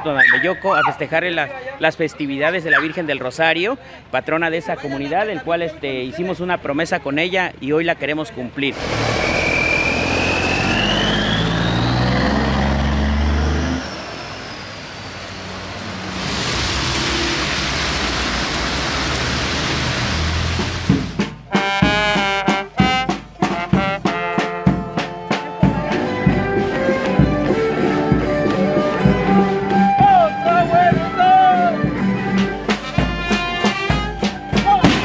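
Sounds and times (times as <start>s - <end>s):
heavy truck engine passing: 8.6s - 21.5s, 25.6s - 35.0s
traffic hissing on wet pavement: 8.6s - 21.5s
thin rising whine: 8.7s - 20.8s
music with strong beats: 20.8s - 35.0s.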